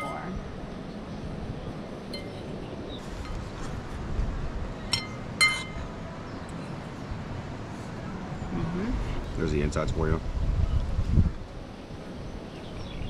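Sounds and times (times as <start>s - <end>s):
fork clinking on ceramic bowl: 4.9s - 5.8s.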